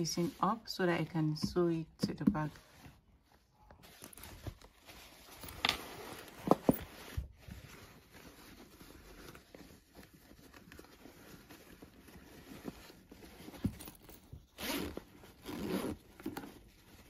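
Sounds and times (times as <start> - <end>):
fabric rustling: 0.0 - 1.8, 2.4 - 17.0
zipper rasping: 13.8 - 16.5.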